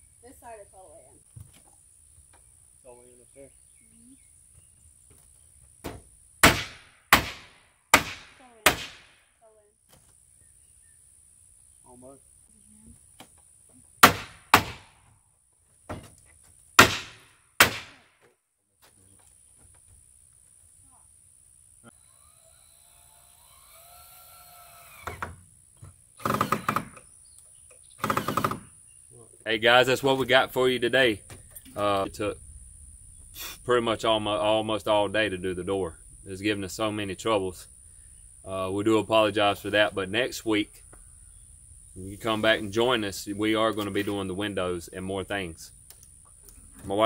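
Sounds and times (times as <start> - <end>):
power drill whirring: 22.0 - 25.4, 26.2 - 27.0, 28.0 - 28.6.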